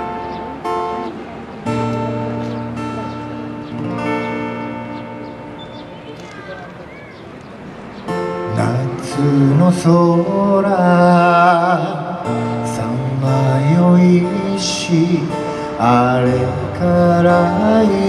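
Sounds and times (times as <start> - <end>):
acoustic guitar: 0.0 - 18.0
man singing: 8.4 - 18.0.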